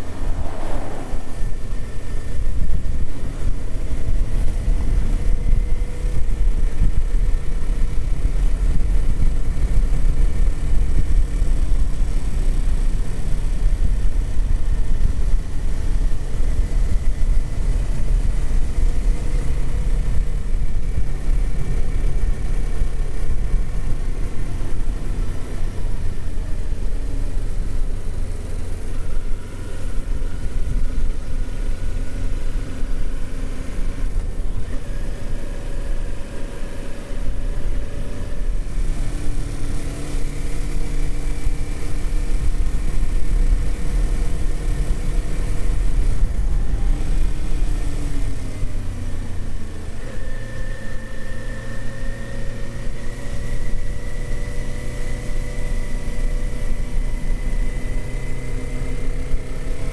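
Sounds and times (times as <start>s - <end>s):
wind rush on microphone: 0.0s - 25.4s
motorcycle engine running: 1.3s - 59.9s.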